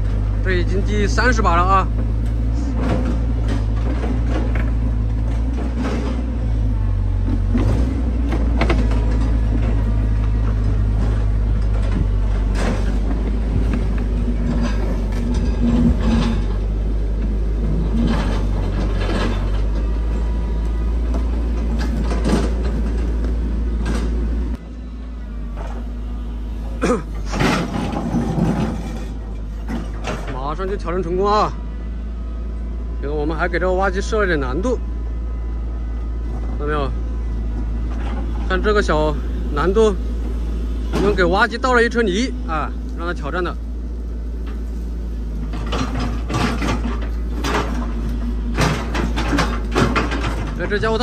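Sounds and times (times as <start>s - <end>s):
excavator diesel engine droning: 0.0s - 51.0s
metal clanks and knocks: 1.3s - 6.5s, 7.2s - 20.4s, 21.0s - 24.5s, 26.6s - 31.4s, 40.8s - 41.5s, 45.3s - 51.0s.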